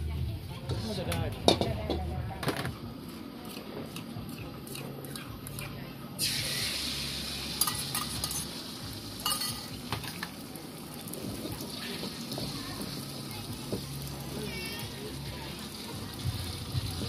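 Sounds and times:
food sizzling in hot oil: 0:06.2 - 0:17.0
utensils clinking on wok: 0:07.5 - 0:08.6, 0:09.2 - 0:10.4.

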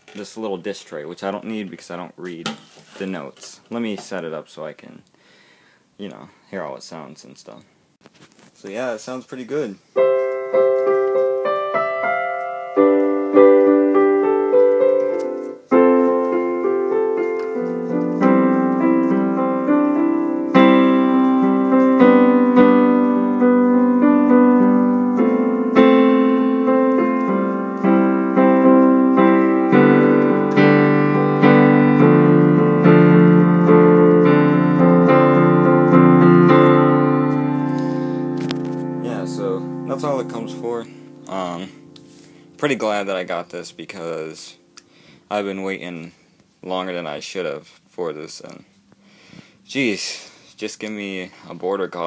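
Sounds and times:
piano chords and notes: 0:09.9 - 0:45.7.

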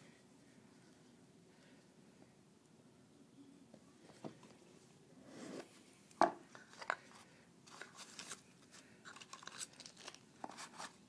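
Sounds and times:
packaging rustling: 0:07.7 - 0:11.0.

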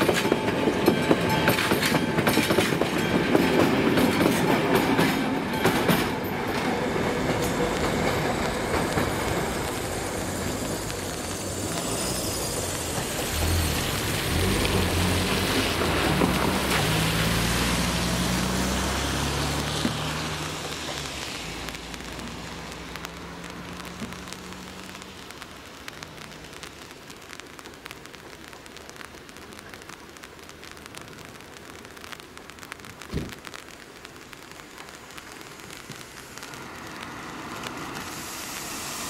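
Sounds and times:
steady rain: 0:00.0 - 0:39.0
tyres hissing on wet road: 0:00.0 - 0:39.0
raindrops ticking: 0:05.6 - 0:39.0
car engines accelerating: 0:11.9 - 0:20.8.

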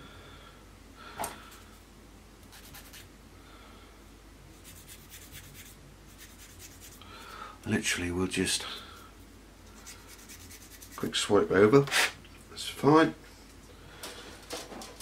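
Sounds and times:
light scratching strokes: 0:04.5 - 0:07.0, 0:08.6 - 0:12.2.

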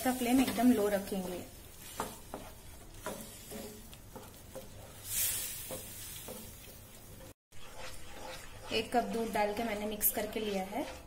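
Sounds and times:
wooden spatula scraping a pan: 0:00.0 - 0:11.0.

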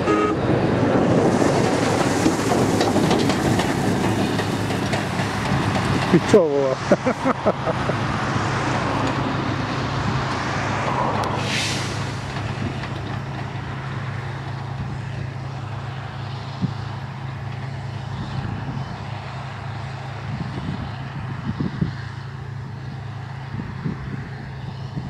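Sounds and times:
diesel machinery engines droning: 0:00.0 - 0:25.0
short hiss: 0:11.4 - 0:12.3.

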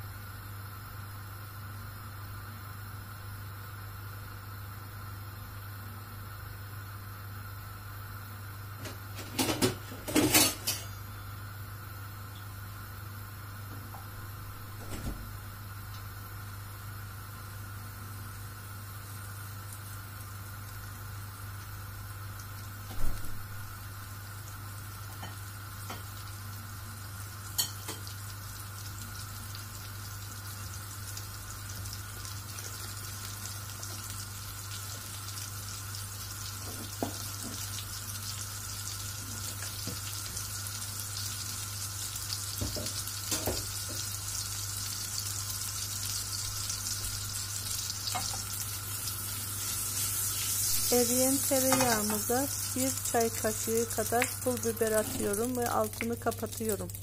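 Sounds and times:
butter sizzling in frying pan: 0:15.5 - 0:57.0.

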